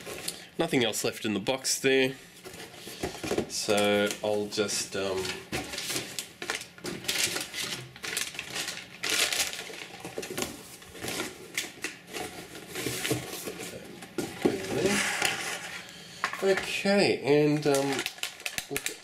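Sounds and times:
cardboard and paper rustling: 2.4 - 15.8, 17.4 - 19.0.

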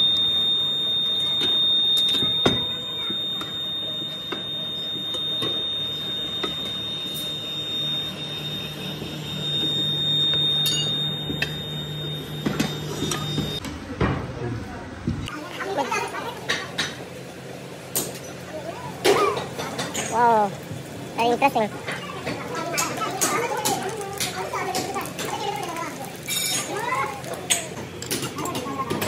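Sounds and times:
machine hum with high whine: 0.0 - 22.0.

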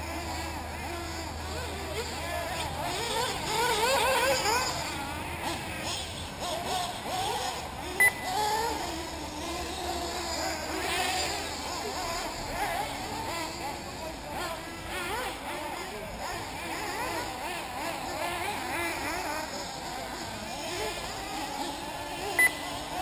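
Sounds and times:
rc car engines whining: 0.0 - 23.0
short beep: 8.0 - 8.3, 22.4 - 22.6.

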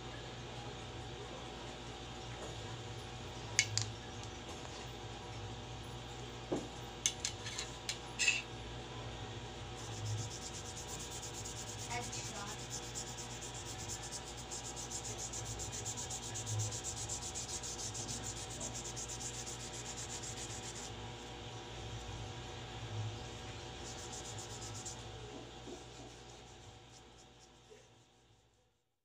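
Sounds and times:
brush scrubbing metal blade: 7.2 - 8.4, 9.8 - 20.9, 23.6 - 27.6.

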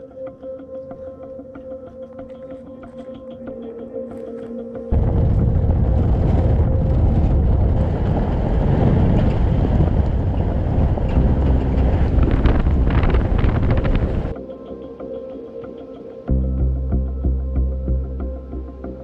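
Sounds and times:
wind buffeting microphone: 4.9 - 14.4.

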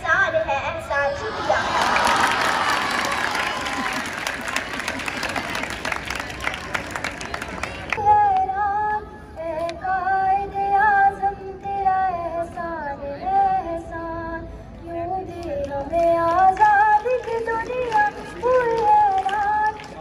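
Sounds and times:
girl singing into a microphone: 8.0 - 19.8.

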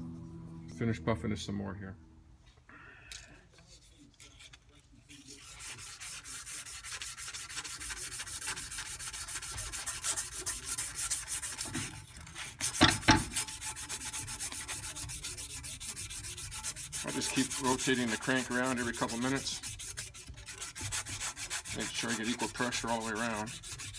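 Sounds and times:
sandpaper rubbing metal: 5.1 - 23.9.

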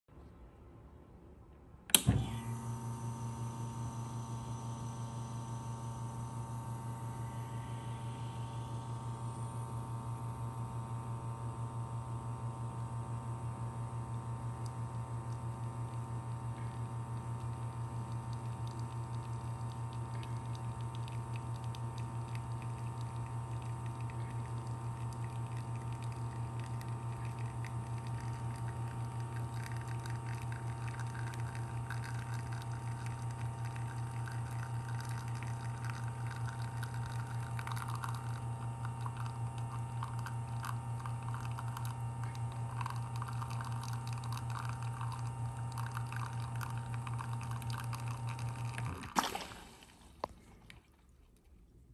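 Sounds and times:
espresso machine pump humming: 1.9 - 50.8
espresso trickling into cup: 14.6 - 49.2.

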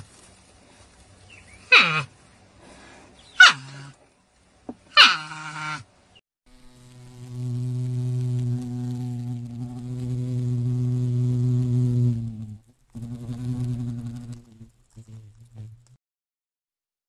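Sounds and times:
hoverfly wings buzzing: 6.5 - 16.0.

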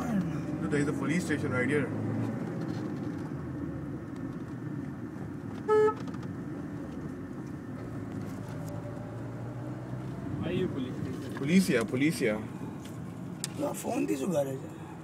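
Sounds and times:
car cabin road and engine noise: 0.0 - 15.0
short car horn toot: 5.6 - 6.0.

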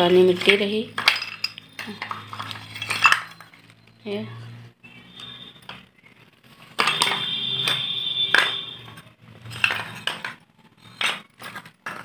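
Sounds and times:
pottery shards clinking: 0.3 - 3.7, 9.4 - 12.0.

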